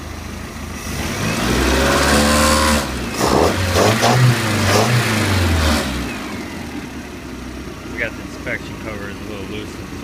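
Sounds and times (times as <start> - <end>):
marine engine revving: 0.8 - 6.8.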